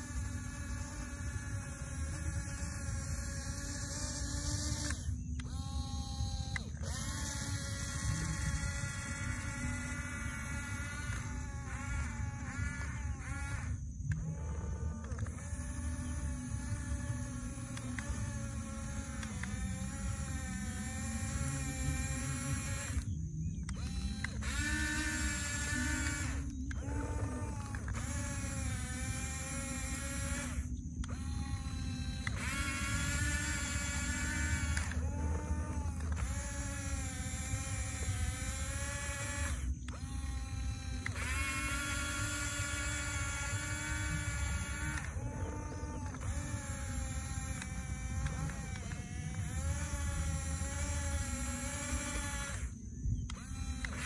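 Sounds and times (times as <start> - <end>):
toy bulldozer motors whining: 0.0 - 54.0.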